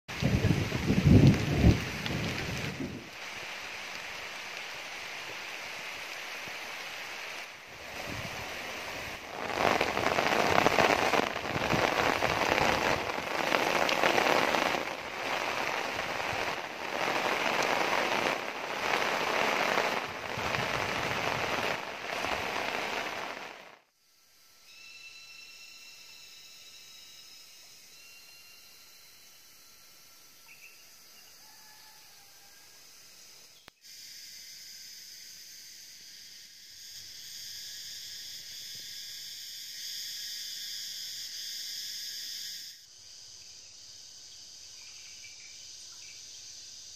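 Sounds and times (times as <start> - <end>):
heavy rain pouring: 0.1 - 23.8
insects chirping: 0.1 - 46.9.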